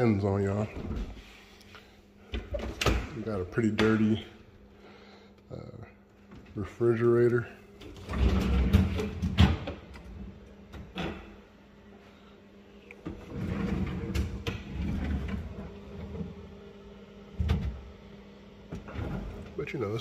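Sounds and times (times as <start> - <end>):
faint steady hum: 0.0 - 20.0
refrigerator doors and drawers clicking: 7.8 - 11.3.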